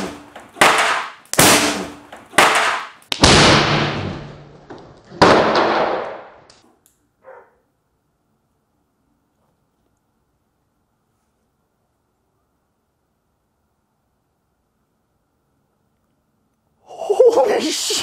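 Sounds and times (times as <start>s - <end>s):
loud echoing cannon bang: 0.0s - 4.5s, 5.2s - 6.4s.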